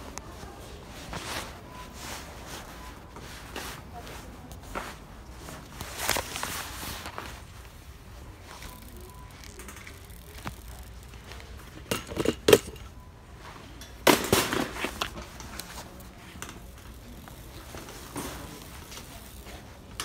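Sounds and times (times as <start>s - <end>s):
keys jangling on metal cart: 11.7s - 12.9s.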